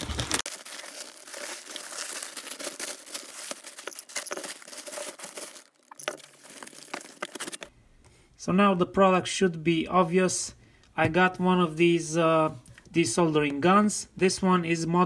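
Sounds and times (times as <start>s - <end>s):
courier bag tearing open: 0.0s - 7.7s
plastic packaging crinkling: 0.0s - 7.7s.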